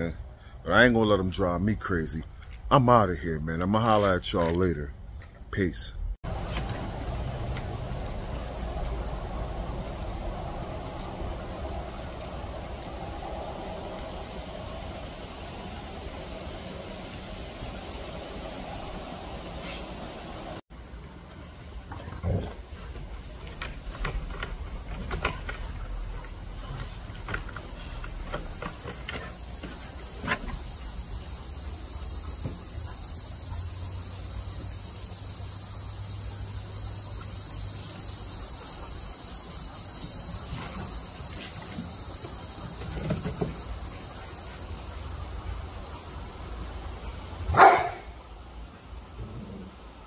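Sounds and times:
high insect chirring: 0:05.6 - 0:50.0
dog barking: 0:47.5 - 0:48.2.

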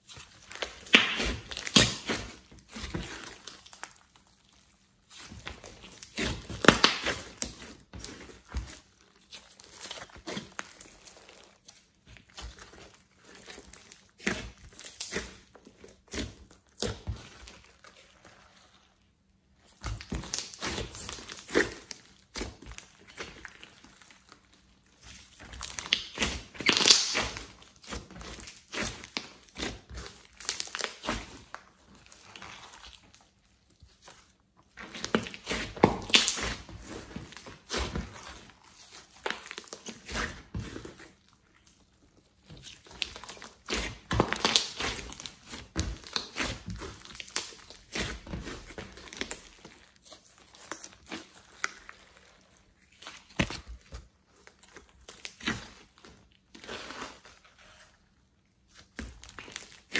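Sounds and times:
slime squelching: 0:00.0 - 0:59.9
slime clicks and crackles: 0:19.8 - 0:24.4, 0:25.2 - 0:33.2, 0:34.8 - 0:36.7, 0:42.6 - 0:48.1.

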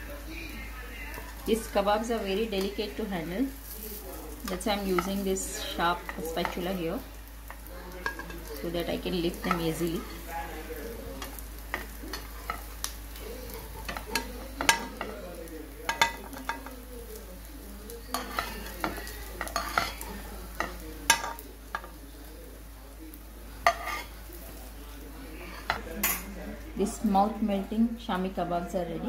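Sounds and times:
food sizzling in oil: 0:00.0 - 0:29.0
spatula scraping pan: 0:18.1 - 0:21.9, 0:23.6 - 0:24.4, 0:25.4 - 0:26.2.

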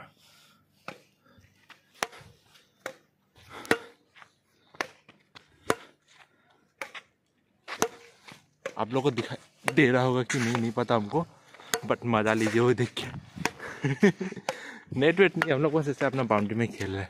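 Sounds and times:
rackets hitting shuttlecock: 0:01.9 - 0:04.0, 0:04.7 - 0:06.0, 0:06.8 - 0:07.1, 0:07.7 - 0:08.8, 0:11.6 - 0:12.0, 0:13.4 - 0:13.6.

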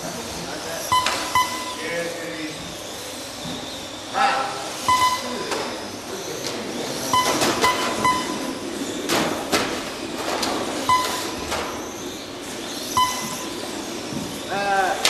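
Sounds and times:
hall noise: 0:00.0 - 0:15.0
short electronic beeps: 0:00.9 - 0:01.9, 0:04.8 - 0:05.8, 0:07.1 - 0:08.6, 0:10.8 - 0:11.5, 0:12.9 - 0:13.6.

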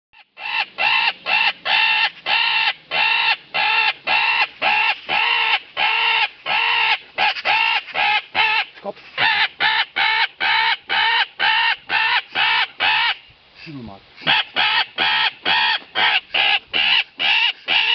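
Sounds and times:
magpie call squawks: 0:00.2 - 0:13.2, 0:14.2 - 0:17.9.

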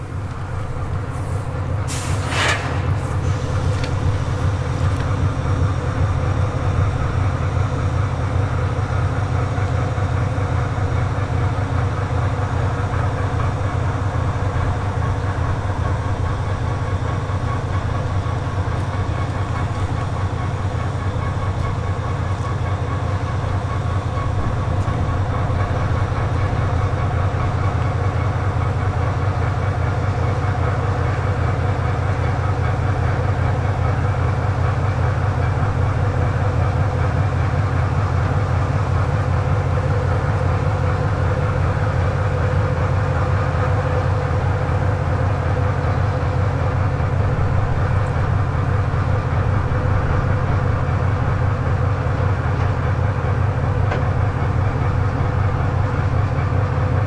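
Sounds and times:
diesel locomotive engines rumbling: 0:00.0 - 0:57.0.

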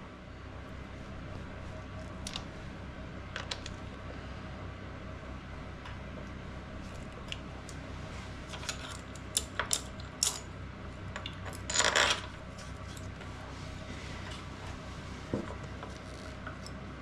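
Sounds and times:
metal tool clicks and clinks: 0:08.7 - 0:10.5.

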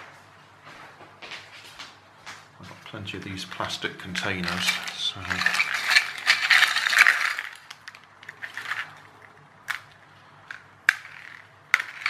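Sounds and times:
plastic bag crinkling: 0:03.6 - 0:09.4.

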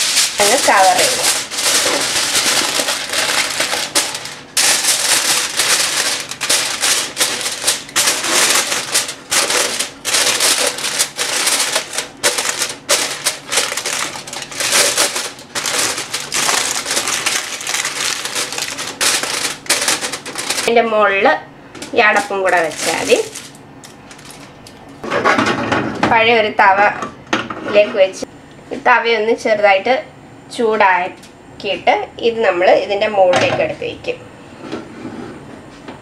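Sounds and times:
aluminium foil crinkling: 0:00.0 - 0:20.7, 0:21.8 - 0:24.8.

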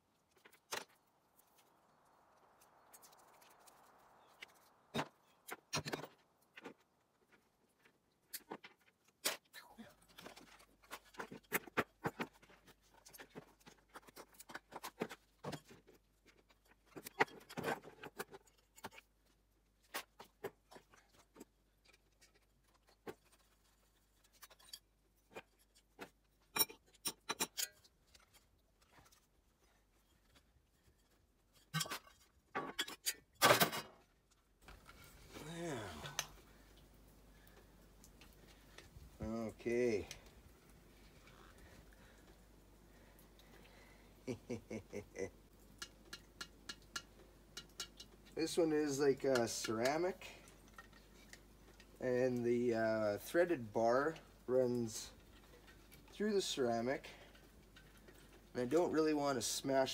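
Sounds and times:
metal parts clicking and clinking: 0:20.7 - 0:25.8, 0:26.4 - 0:28.5.

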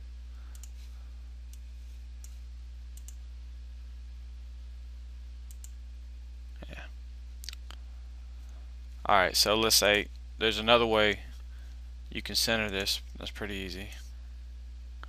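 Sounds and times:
low electrical hum: 0:00.0 - 0:15.0
computer mouse clicks: 0:00.5 - 0:00.8, 0:03.0 - 0:03.2, 0:05.5 - 0:05.8.

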